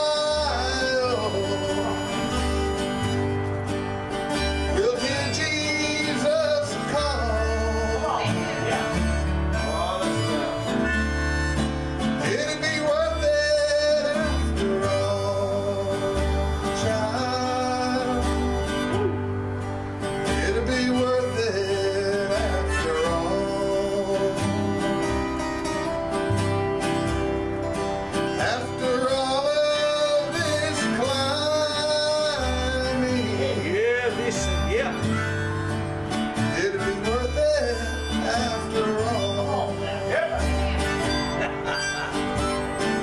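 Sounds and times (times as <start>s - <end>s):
man singing: 0.0s - 2.5s, 4.6s - 19.3s, 20.2s - 25.3s, 28.3s - 35.4s, 36.4s - 41.8s
acoustic guitar strumming: 0.0s - 43.0s
bass line: 0.0s - 43.0s.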